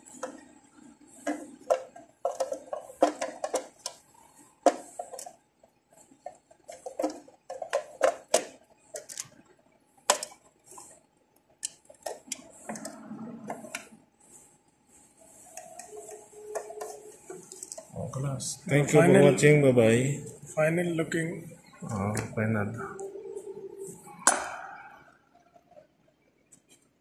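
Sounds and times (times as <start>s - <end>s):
plastic cover clicking and rattling: 1.2s - 5.4s, 6.2s - 11.0s.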